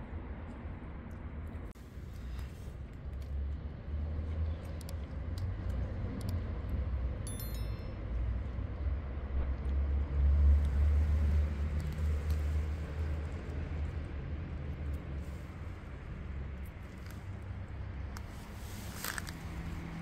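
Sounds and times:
bright bell chime: 7.3s - 8.4s.

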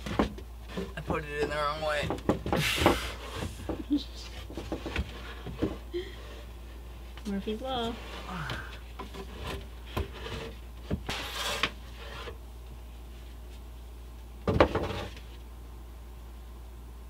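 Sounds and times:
wooden knocks: 0.0s - 5.8s
wood scraping on wood: 0.0s - 12.4s, 14.5s - 15.4s
wood board clatter: 14.4s - 15.2s.

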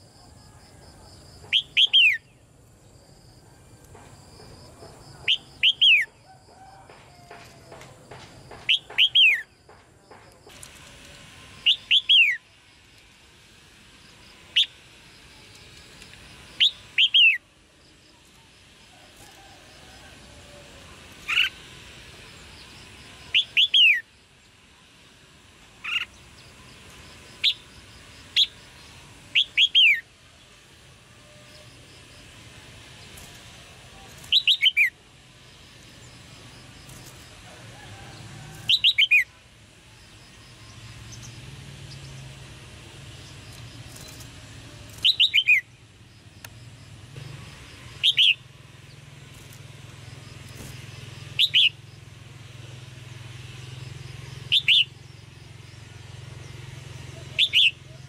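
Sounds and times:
bird chirping calls: 1.4s - 2.5s, 4.7s - 6.3s, 7.6s - 10.2s, 11.6s - 12.5s, 16.5s - 17.4s, 22.3s - 24.1s, 25.8s - 30.1s, 33.0s - 35.0s, 38.6s - 39.4s, 44.9s - 45.8s, 47.4s - 52.0s, 53.7s - 55.7s, 57.1s - 58.0s.

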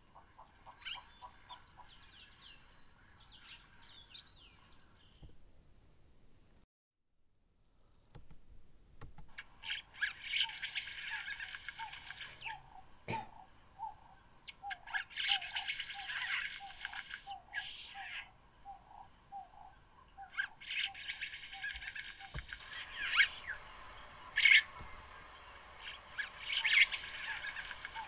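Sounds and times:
sharp bird calls: 0.0s - 5.3s, 9.3s - 28.0s
buzzy bird chattering song: 0.4s - 4.4s, 9.4s - 28.0s
low repeated bird notes: 9.4s - 28.0s.

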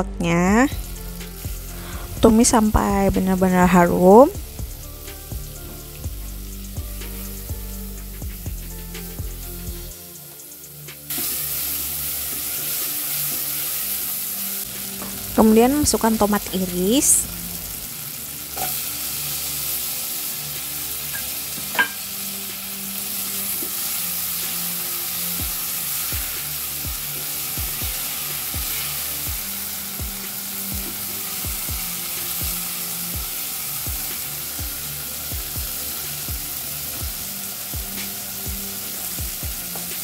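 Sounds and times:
tomato and paste sizzling in oil: 0.7s - 40.0s
knock on pot: 21.7s - 22.0s.

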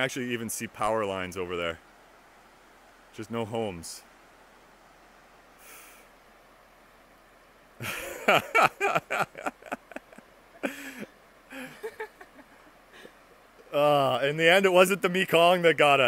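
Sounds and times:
man laughing: 7.8s - 13.1s.

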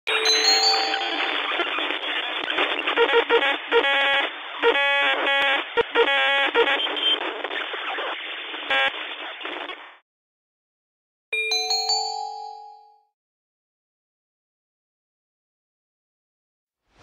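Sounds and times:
radio static: 1.3s - 10.0s.

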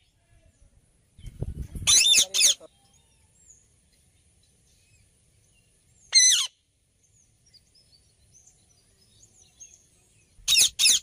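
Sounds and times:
parakeet call: 1.8s - 2.7s, 6.1s - 6.6s, 10.4s - 11.0s.

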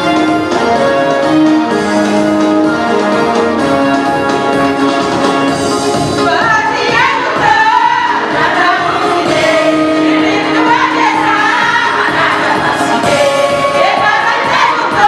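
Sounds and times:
instrumental backing: 0.0s - 15.0s
women singing a hymn: 6.2s - 15.0s.

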